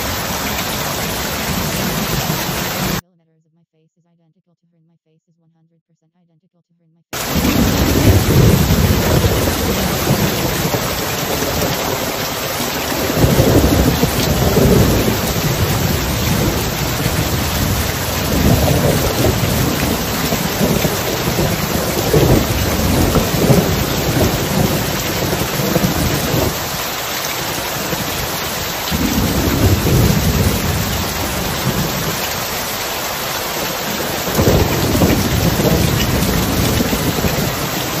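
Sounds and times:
rain falling: 0:00.0 - 0:03.0, 0:07.2 - 0:38.0
thunder rolling: 0:07.2 - 0:38.0.

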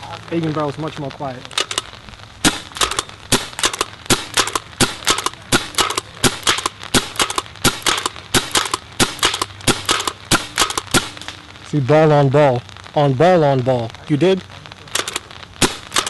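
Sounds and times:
paintball marker pops: 0:01.5 - 0:11.4.

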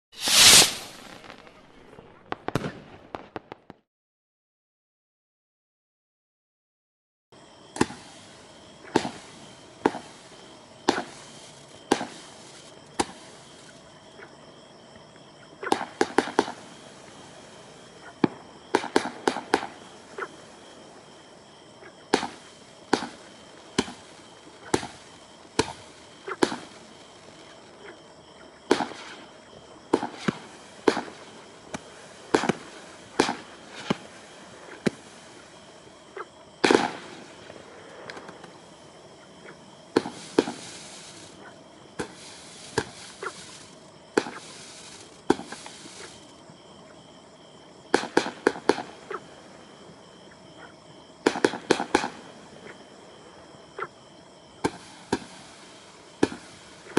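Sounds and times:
firework cake shots: 0:00.2 - 0:03.7.

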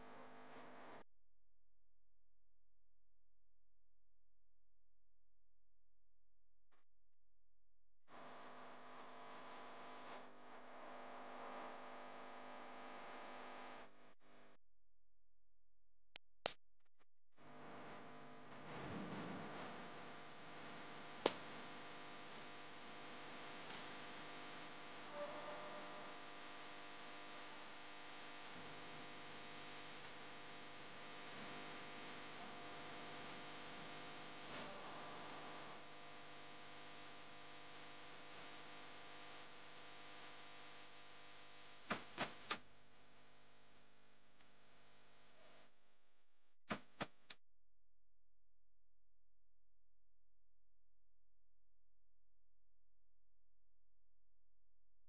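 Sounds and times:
small click: 0:41.9 - 0:42.6.

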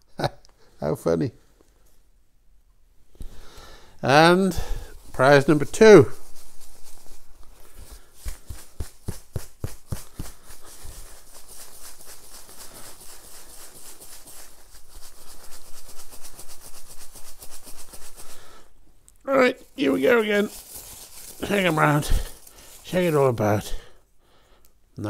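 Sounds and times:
paper slips rattling in hat: 0:04.5 - 0:18.7, 0:19.5 - 0:23.9.

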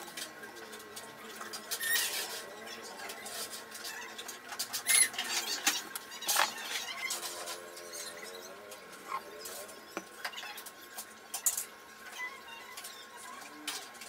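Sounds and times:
high squeaky chirp: 0:04.8 - 0:07.2.

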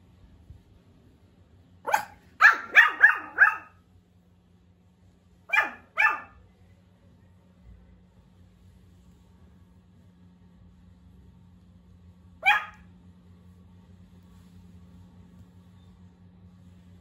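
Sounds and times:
puppy barking in high yaps: 0:01.8 - 0:03.8, 0:05.5 - 0:06.4, 0:12.4 - 0:12.9.

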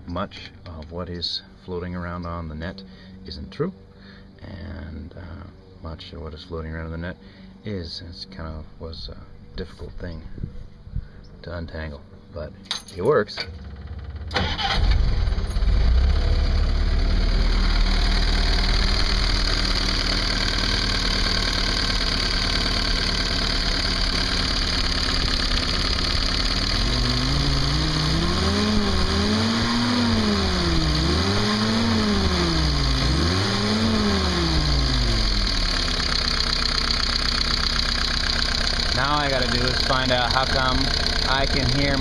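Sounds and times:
car engine idling and revving: 0:13.6 - 0:42.0
engine lifters clattering: 0:36.2 - 0:42.0.

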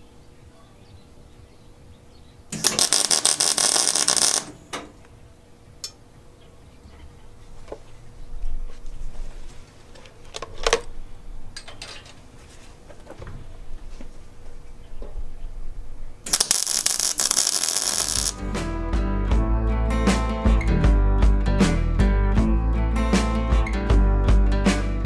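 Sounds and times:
welding arc crackling: 0:02.5 - 0:04.6, 0:16.3 - 0:18.4.

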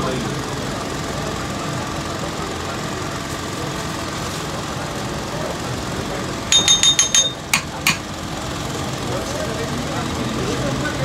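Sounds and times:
metal ladle clinking on pots: 0:06.5 - 0:08.1.

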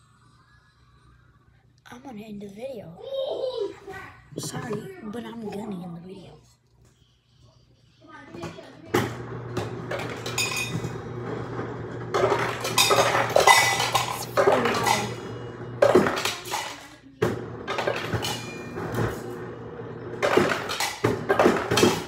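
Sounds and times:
ice cubes clinking into a cup: 0:12.2 - 0:15.2.

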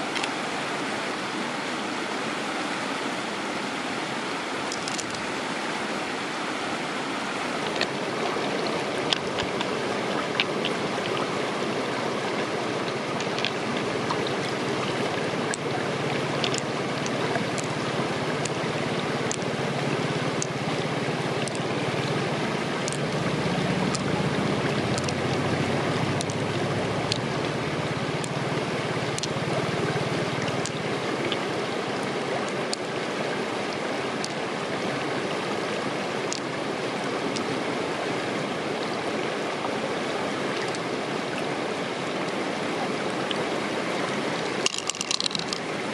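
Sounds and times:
small clicks of shells: 0:44.6 - 0:45.6.

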